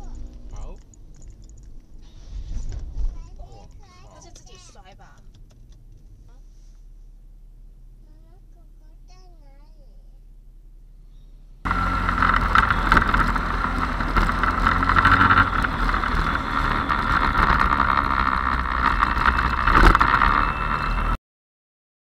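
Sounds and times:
motorbike engine and road noise: 0:00.0 - 0:07.0, 0:07.6 - 0:21.2.

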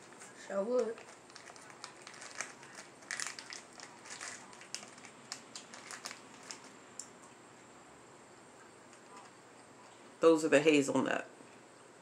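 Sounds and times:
plastic bag crinkling: 0:00.1 - 0:06.8.

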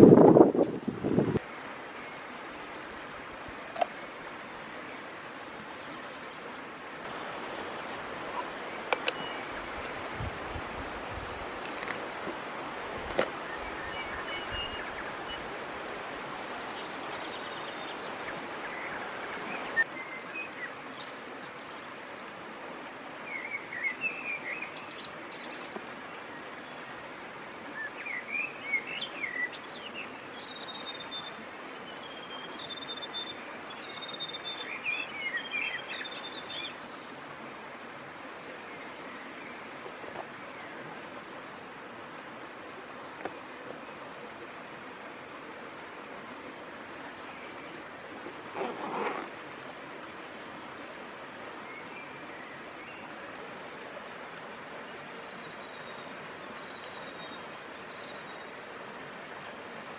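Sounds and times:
stream flowing over stones: 0:00.0 - 0:59.9
small birds chirping: 0:12.9 - 0:21.9.

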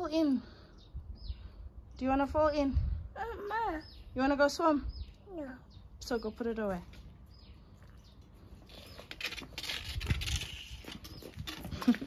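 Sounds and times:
plastic net scraping on paving stones: 0:08.6 - 0:12.0.

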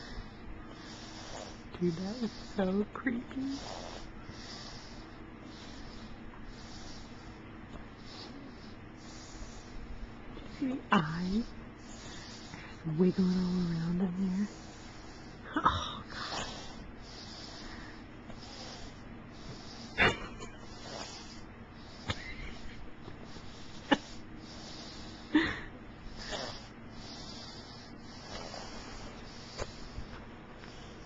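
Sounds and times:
toddler sniffs and breaths: 0:00.0 - 0:31.0.

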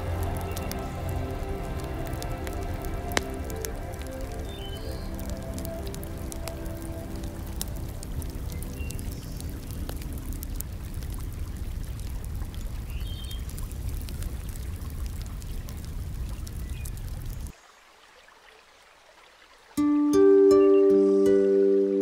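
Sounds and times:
drip-like ticks: 0:00.0 - 0:17.4
faint hiss: 0:00.0 - 0:22.0
running water: 0:00.0 - 0:22.0.

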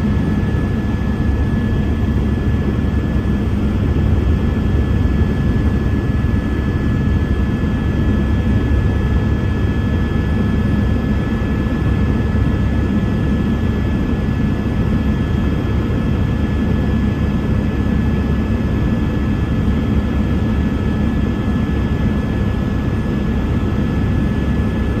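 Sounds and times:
helicopter engine and rotor noise: 0:00.0 - 0:25.0.

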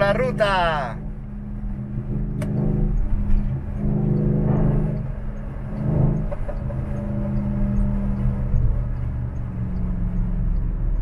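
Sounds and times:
car engine accelerating: 0:00.0 - 0:11.0
road rumble inside car: 0:00.0 - 0:11.0.

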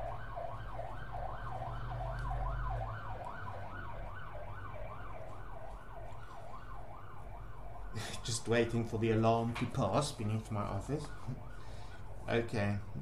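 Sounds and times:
low vehicle rumble: 0:00.0 - 0:09.5
emergency siren wailing: 0:00.0 - 0:13.0.

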